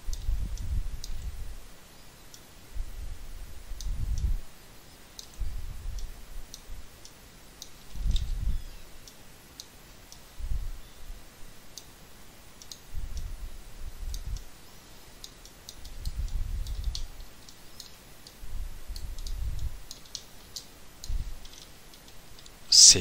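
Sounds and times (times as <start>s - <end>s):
computer mouse and keyboard clicks: 12.6s - 13.2s, 15.2s - 22.5s.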